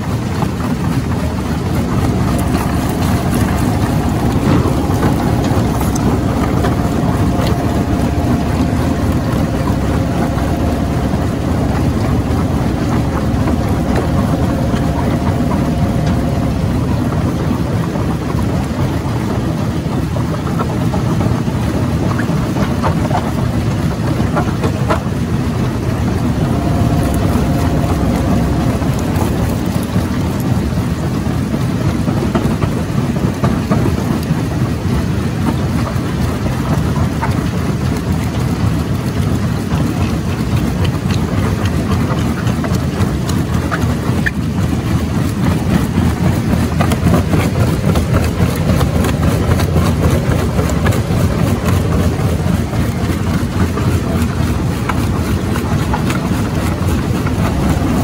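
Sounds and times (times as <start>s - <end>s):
rock crusher rumbling: 0.0s - 58.0s.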